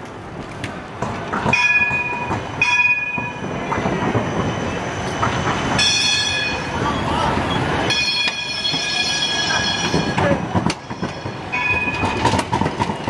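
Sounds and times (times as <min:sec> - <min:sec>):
tram rolling on street track: 0:00.0 - 0:13.0
high ringing tones: 0:05.8 - 0:12.2.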